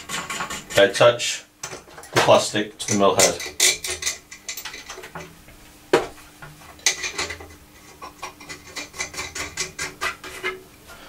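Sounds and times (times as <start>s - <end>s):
small metal clicks and scrapes: 0.0s - 1.0s, 6.8s - 10.6s.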